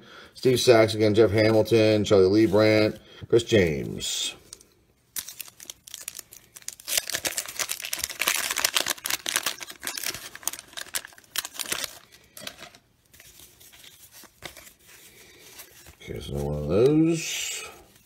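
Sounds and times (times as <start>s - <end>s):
faint rustling of cards: 0.4s - 18.0s
wax paper wrapper tearing: 4.5s - 18.0s.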